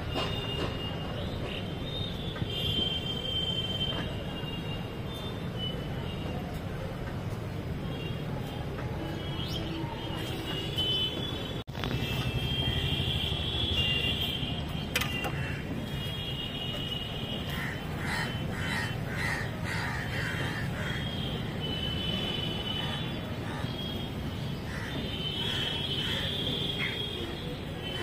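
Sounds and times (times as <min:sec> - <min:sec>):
crows cawing: 0:17.5 - 0:21.2, 0:24.7 - 0:27.0.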